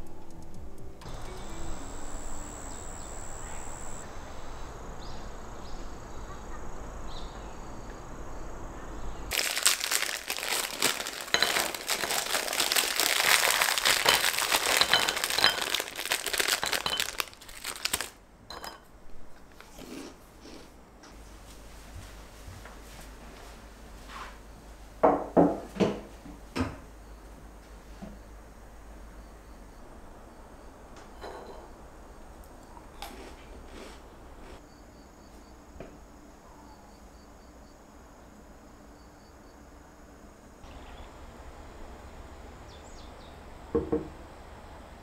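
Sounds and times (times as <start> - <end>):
plastic packet crinkling: 9.3 - 18.2
biscuits falling into bowl: 9.3 - 18.8.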